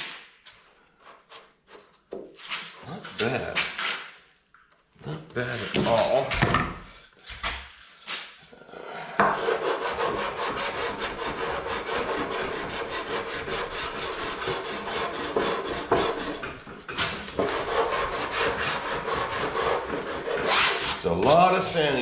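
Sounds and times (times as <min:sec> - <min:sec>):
sandpaper rubbing on plywood: 0:09.4 - 0:22.0.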